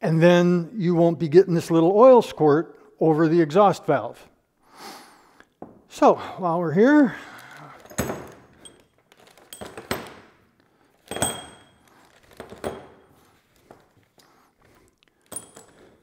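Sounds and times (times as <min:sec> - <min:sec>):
plastic zip bag rustling: 0:07.2 - 0:09.5, 0:11.8 - 0:12.6
small metal parts clinking: 0:08.5 - 0:10.1, 0:15.2 - 0:16.0.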